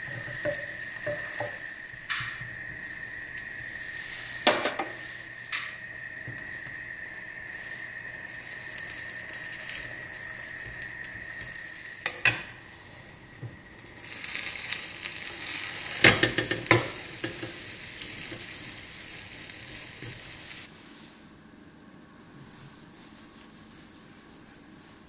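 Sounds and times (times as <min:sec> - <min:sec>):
egg sizzling in a pan: 0:00.0 - 0:20.7
spatula knocking against pan: 0:00.1 - 0:01.6.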